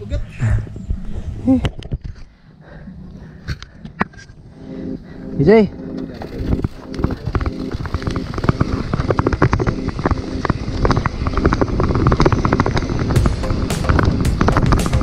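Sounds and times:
low wind rumble: 0:00.0 - 0:15.0
bike rattling: 0:05.9 - 0:15.0.

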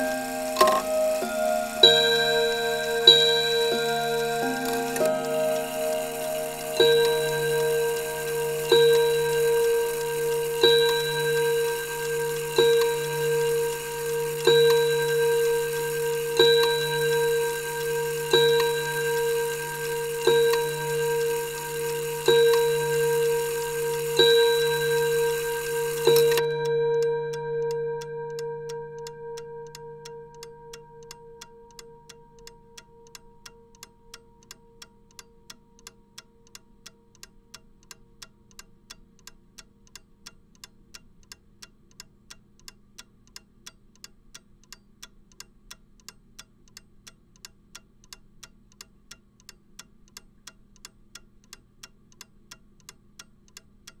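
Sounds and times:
clock chime ringing: 0:00.0 - 0:32.7
mechanical clock ticking: 0:00.0 - 0:54.0.

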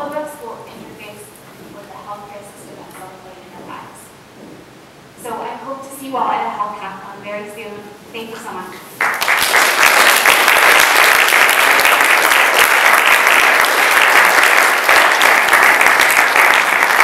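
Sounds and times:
audience applauding: 0:09.0 - 0:17.0.

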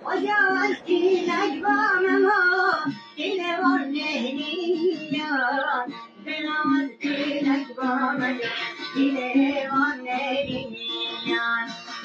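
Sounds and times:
backing music: 0:00.0 - 0:12.0.

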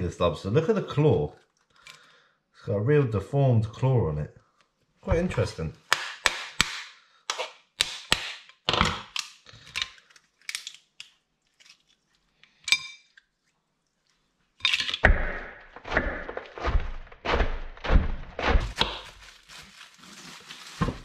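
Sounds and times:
lobster shell cracking: 0:09.0 - 0:12.6
knife cutting lettuce on board: 0:16.5 - 0:19.3.

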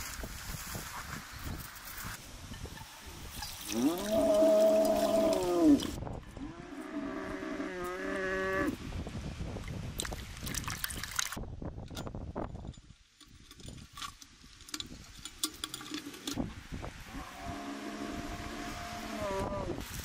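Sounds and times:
cow mooing: 0:03.7 - 0:08.8, 0:17.1 - 0:19.8.

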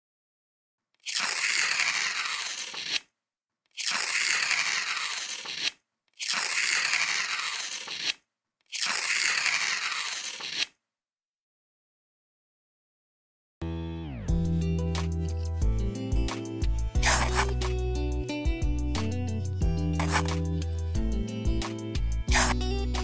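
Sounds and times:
digging tool scraping sand: 0:01.0 - 0:03.1, 0:03.8 - 0:08.2, 0:17.0 - 0:17.7, 0:20.0 - 0:20.5, 0:22.3 - 0:22.6.

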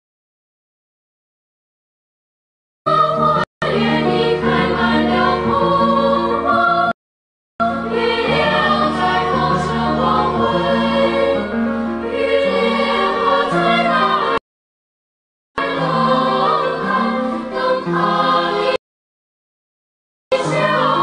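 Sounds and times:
music with singing voices: 0:02.9 - 0:07.0, 0:07.6 - 0:14.4, 0:15.6 - 0:18.8, 0:20.3 - 0:21.0.

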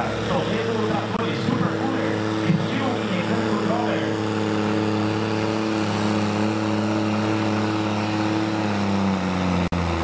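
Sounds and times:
tractor diesel engine under load: 0:00.0 - 0:10.0.

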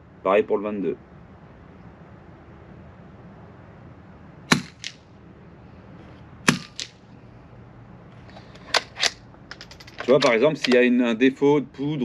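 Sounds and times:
suppressed rifle shots: 0:04.5 - 0:05.0, 0:06.5 - 0:07.0.

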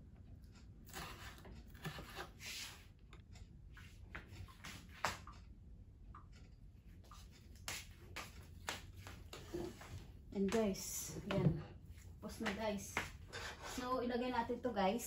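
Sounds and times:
knife cutting on wooden board: 0:00.9 - 0:02.7
soft rustles and knocks: 0:08.2 - 0:13.2.

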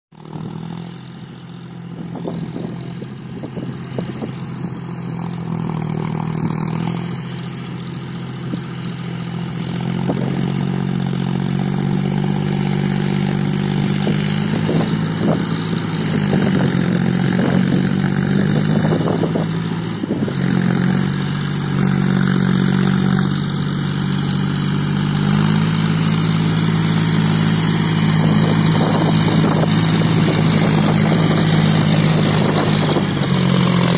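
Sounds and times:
tractor diesel engine running: 0:00.1 - 0:33.9.

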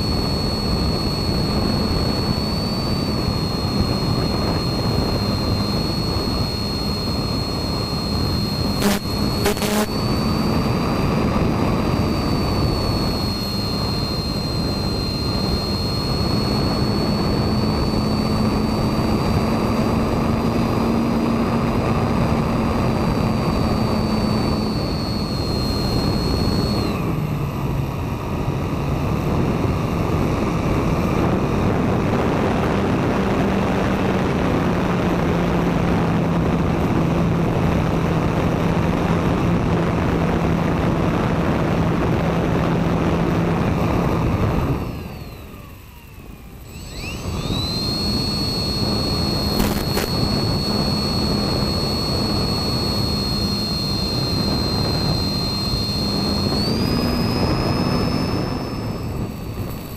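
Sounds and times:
wind noise rush: 0:00.0 - 0:45.4
high whine: 0:00.0 - 0:59.9
motor and propeller drone: 0:00.0 - 0:59.9.

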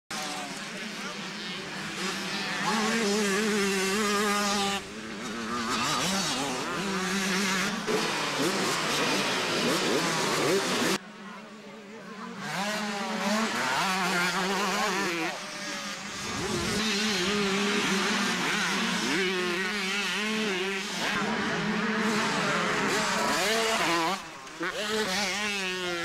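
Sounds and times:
motocross bike engine revving: 0:00.1 - 0:11.0, 0:12.3 - 0:26.0.

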